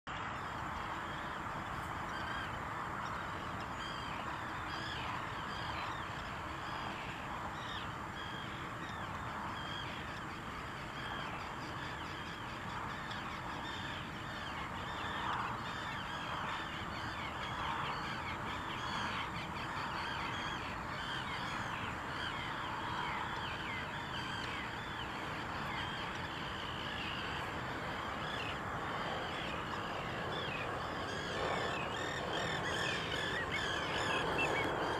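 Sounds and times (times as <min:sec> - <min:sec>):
many birds chattering: 0:00.7 - 0:34.9.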